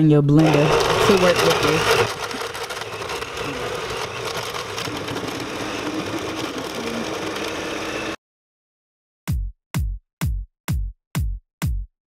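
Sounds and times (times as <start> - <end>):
blender running: 0.4 - 8.2.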